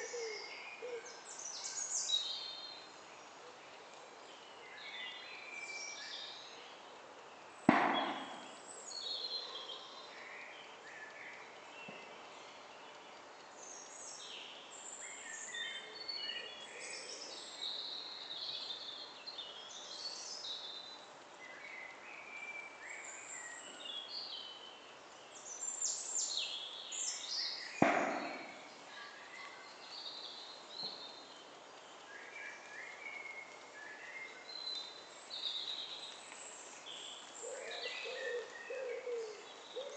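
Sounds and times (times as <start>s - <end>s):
sharp loud bangs with echo: 7.7s - 8.6s, 27.8s - 28.8s.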